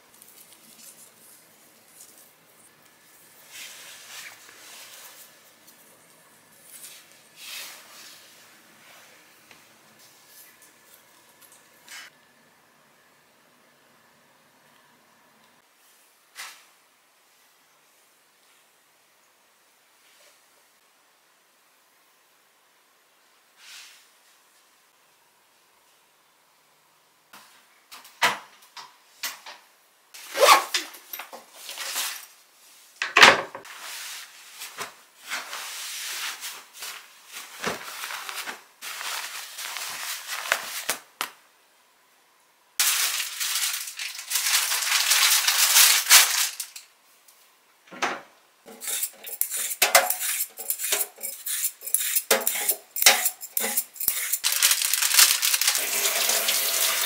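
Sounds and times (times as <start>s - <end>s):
cloth rustling: 33.8s - 41.0s, 54.1s - 55.7s
peeler scraping a carrot: 48.7s - 54.5s
household knocks and clinks: 52.2s - 54.9s.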